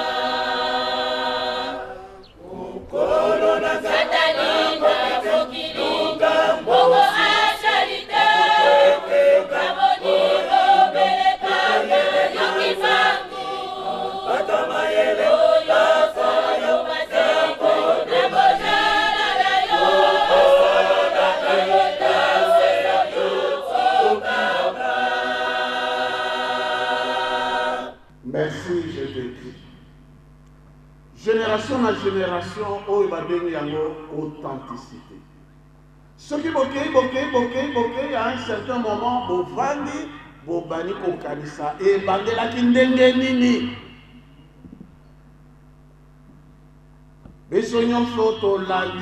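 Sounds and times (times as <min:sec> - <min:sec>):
mixed choir singing a hymn: 0:00.0 - 0:28.0.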